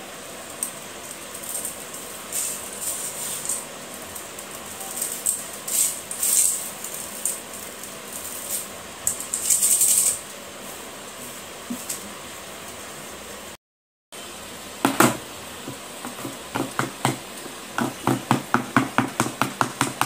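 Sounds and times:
chips rattling through metal sieve: 0.4 - 10.3.

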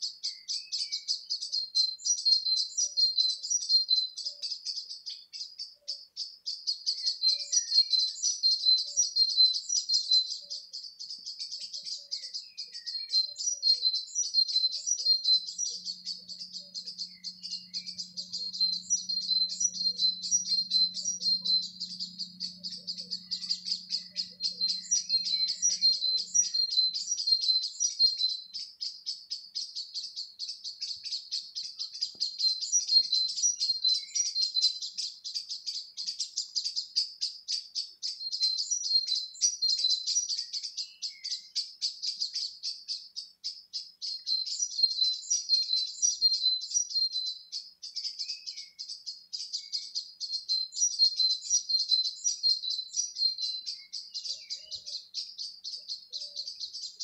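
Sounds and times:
birds chirping and singing: 0.0 - 57.0.

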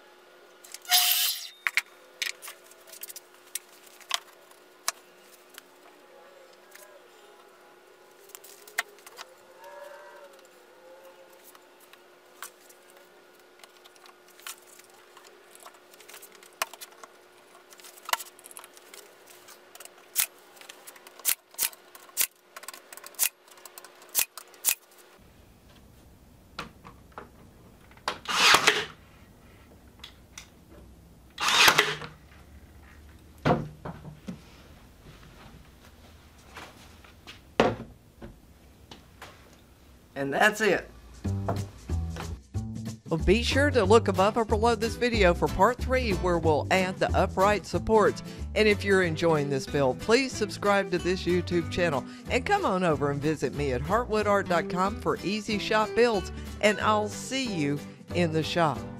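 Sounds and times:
bar clamps sliding and squeezing: 0.7 - 1.6, 31.4 - 32.1
wooden parts clicking and knocking: 19.8 - 24.8.

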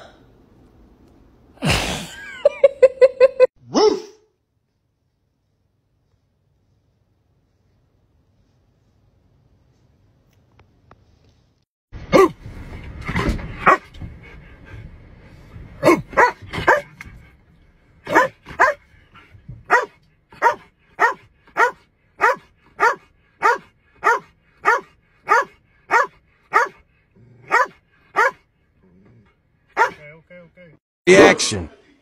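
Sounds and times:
dog barking: 3.7 - 4.2, 12.1 - 12.4, 13.6 - 13.9, 15.8 - 16.9, 18.1 - 18.8, 19.7 - 26.8, 27.4 - 28.4, 29.8 - 30.0.

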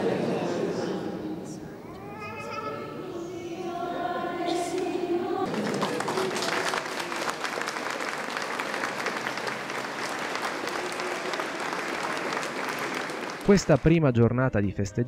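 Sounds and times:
congregation applauding: 4.7 - 14.3.

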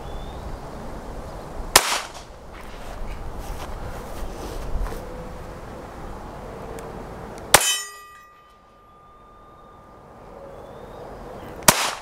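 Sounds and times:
pistol shots: 1.8 - 2.3, 11.6 - 12.0
ringing tone: 7.6 - 10.0.

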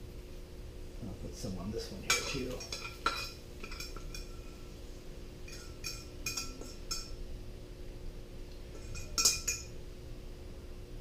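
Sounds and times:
metal spoon tapping frying pan: 2.1 - 4.6, 5.5 - 7.2, 8.8 - 9.8.

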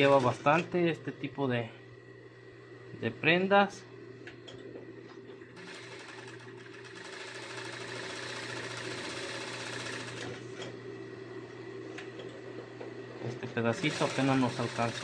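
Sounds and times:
industrial sewing machine stitching: 0.0 - 0.4, 5.6 - 10.6, 13.6 - 15.0
steady low hum: 0.0 - 7.2, 10.1 - 15.0.

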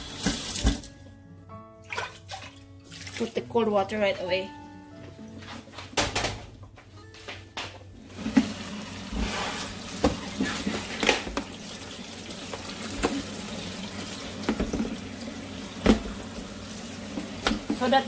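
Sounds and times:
tap water running into sink: 0.0 - 0.9, 8.1 - 18.0
colander knocking and clattering: 5.8 - 6.6, 10.0 - 11.5, 14.4 - 15.0, 15.8 - 16.2, 17.2 - 18.0.

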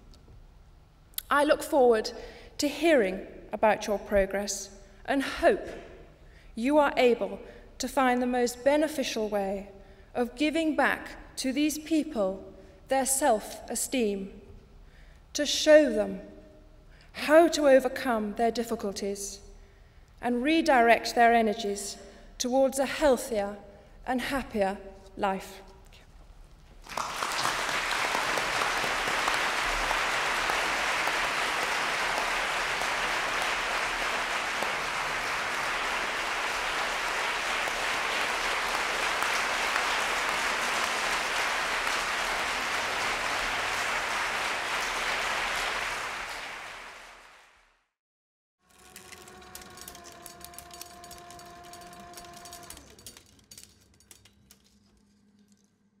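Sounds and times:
audience applauding: 26.8 - 47.6, 48.7 - 53.2.

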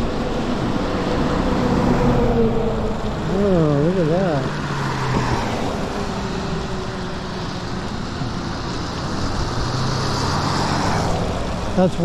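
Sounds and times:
car passing: 0.0 - 12.0
wind rushing: 4.3 - 11.5.

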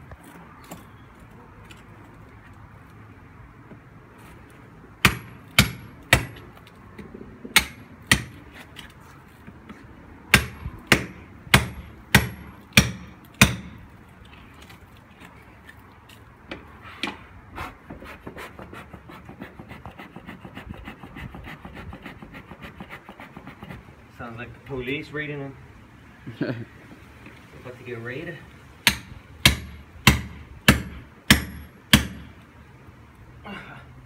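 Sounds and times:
hammer striking chisel on stone: 10.4 - 13.8, 28.9 - 32.2.

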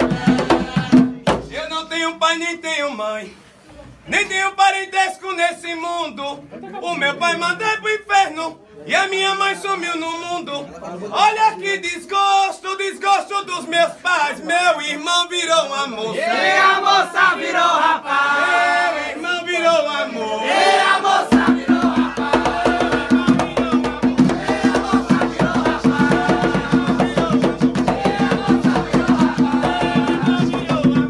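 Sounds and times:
drums and percussion beat: 0.0 - 1.7, 21.2 - 31.0.

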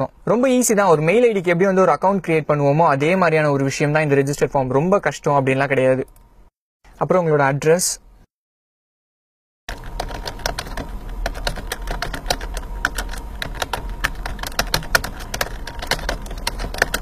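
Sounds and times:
keyboard key clicks: 9.7 - 17.0
low steady hum: 9.7 - 17.0.

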